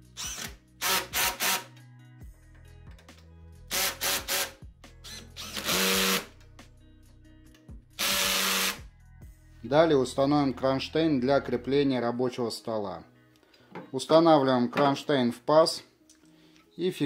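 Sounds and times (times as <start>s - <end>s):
cordless drill driving screws: 0.2s - 1.7s, 3.7s - 6.3s, 8.0s - 8.8s.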